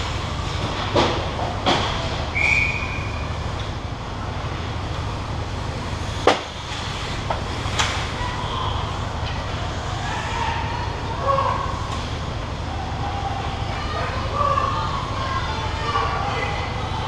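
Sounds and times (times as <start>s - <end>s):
steady low hum: 0.0s - 17.0s
referee's whistle blast: 2.3s - 3.2s
hockey sticks and puck cracking: 6.2s - 8.1s.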